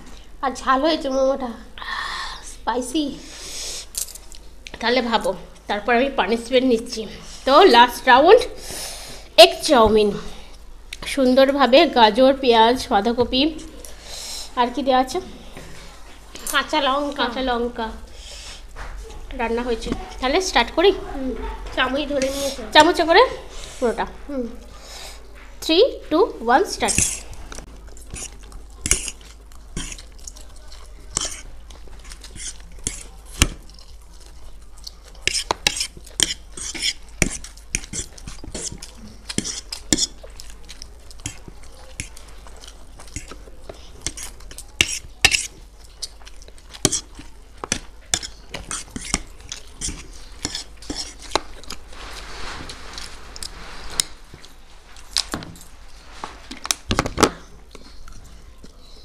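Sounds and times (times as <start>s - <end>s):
forks scraping and clinking on plates: 27.9s - 33.2s, 35.2s - 40.5s, 41.2s - 46.2s, 46.8s - 54.2s
slurping mouth sounds: 27.9s - 47.4s.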